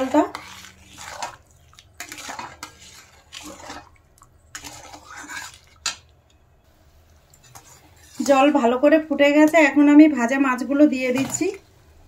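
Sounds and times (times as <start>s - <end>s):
spatula scraping metal pot: 0.0s - 6.1s, 7.4s - 8.7s.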